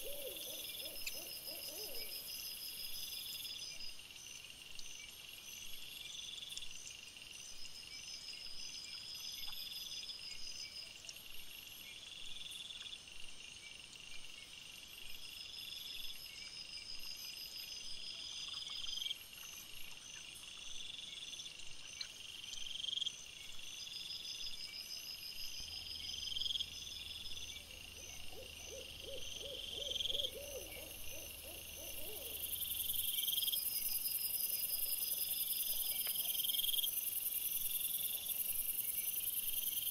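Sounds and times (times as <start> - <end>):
animal pulsed calls: 0.0 - 2.2, 25.8 - 33.7
crickets chirping: 0.0 - 39.9.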